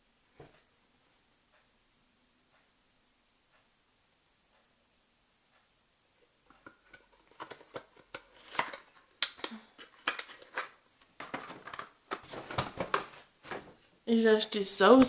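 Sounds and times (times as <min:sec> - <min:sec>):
clicks and taps of handled products: 0:06.5 - 0:13.7
plastic snaps: 0:06.6 - 0:13.6
plastic packaging crinkling: 0:07.2 - 0:13.8.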